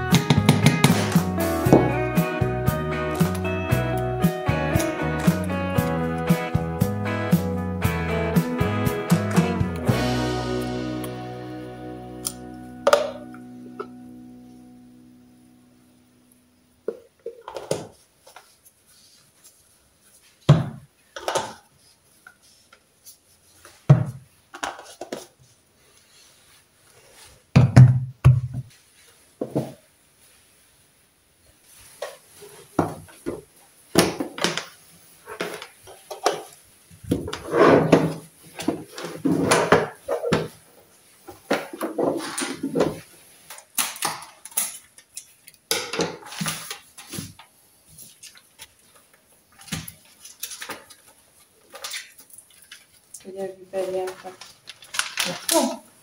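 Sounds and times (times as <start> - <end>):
clattering and rustling plastic bags: 31.6 - 56.0.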